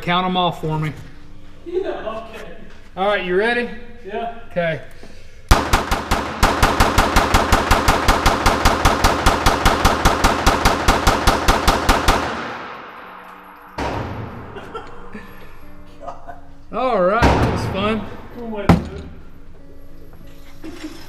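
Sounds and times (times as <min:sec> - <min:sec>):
rapid pistol shots echoing: 0:05.5 - 0:14.8.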